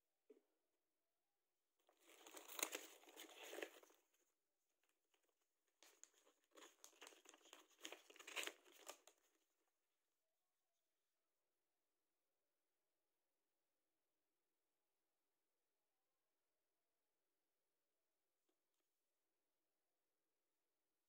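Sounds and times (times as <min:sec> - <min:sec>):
plastic wrapping crinkling: 0:02.0 - 0:04.0, 0:05.9 - 0:09.1
paper pamphlet being handled: 0:02.0 - 0:04.2, 0:05.8 - 0:09.2.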